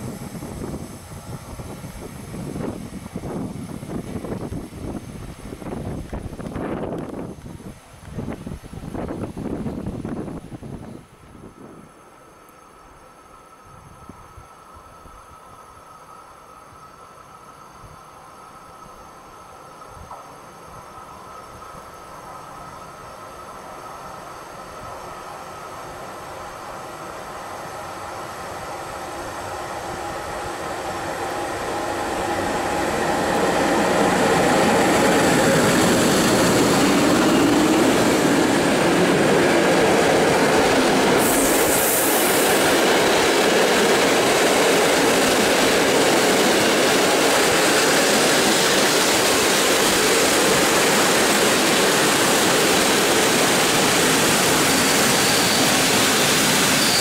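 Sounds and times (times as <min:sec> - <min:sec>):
train rumbling past: 0:00.0 - 0:57.0
brief high hiss: 0:41.2 - 0:42.7.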